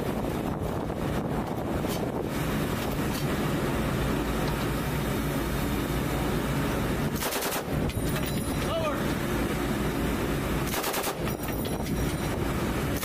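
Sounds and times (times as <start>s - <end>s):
wind buffeting microphone: 0.0s - 3.7s
boat engine and water noise: 0.0s - 13.0s.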